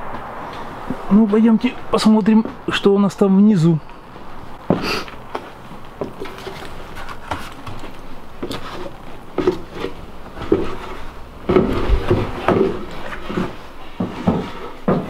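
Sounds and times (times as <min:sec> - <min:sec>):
footsteps on ladder: 0:04.6 - 0:15.0.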